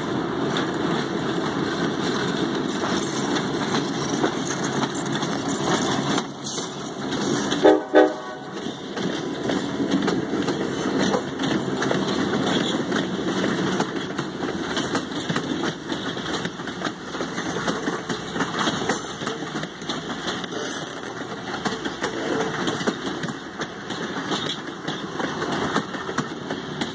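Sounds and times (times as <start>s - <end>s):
train wheels rumbling on rails: 0.0s - 26.9s
train horn toots: 7.6s - 8.6s.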